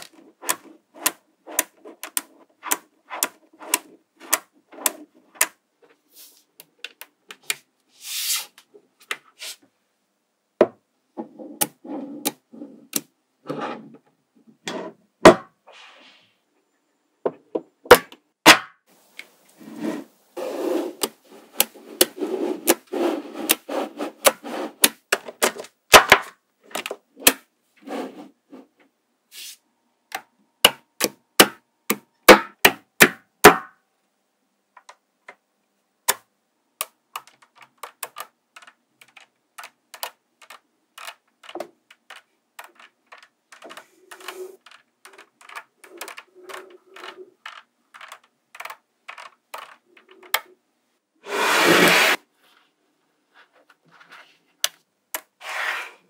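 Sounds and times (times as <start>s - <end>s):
magnetic balls rattling and scraping: 0.0s - 9.6s, 19.5s - 25.8s, 26.6s - 28.9s, 37.2s - 50.6s.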